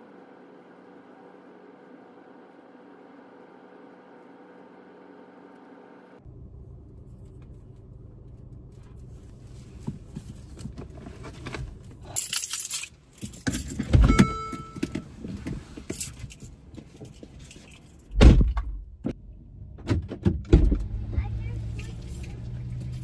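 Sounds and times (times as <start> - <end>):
keys jangling: 12.0 - 14.8, 15.9 - 18.1
brief electronic chime: 14.1 - 14.9.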